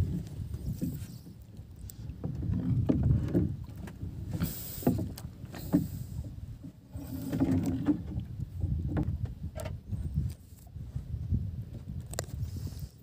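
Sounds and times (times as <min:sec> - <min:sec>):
water slapping against boat hull: 0:00.0 - 0:10.3
knocks from boat: 0:02.2 - 0:06.0.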